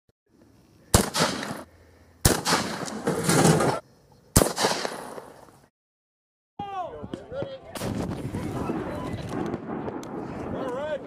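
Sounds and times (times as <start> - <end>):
shotgun shots with echo: 0.9 - 1.6, 2.2 - 3.0, 4.4 - 5.3.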